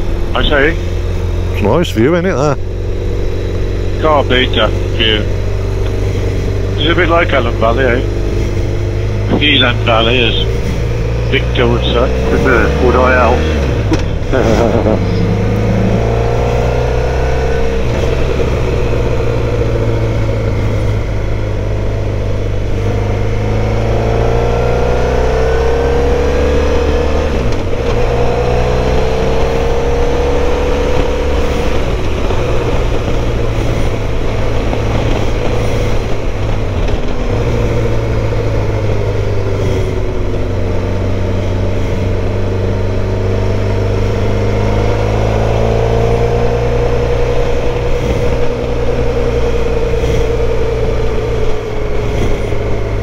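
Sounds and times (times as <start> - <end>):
motorcycle engine running: 0.0 - 53.0
wind rush: 46.0 - 53.0.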